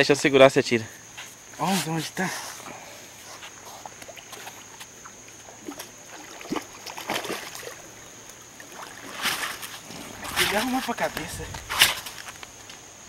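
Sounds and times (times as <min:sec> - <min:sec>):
high insect trill: 0:00.0 - 0:13.0
fish splashing in water: 0:03.6 - 0:12.2.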